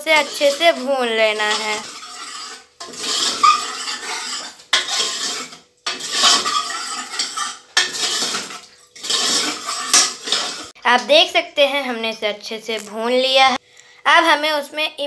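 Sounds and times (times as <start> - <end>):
metal ladle scraping a pan: 0.0 - 10.8.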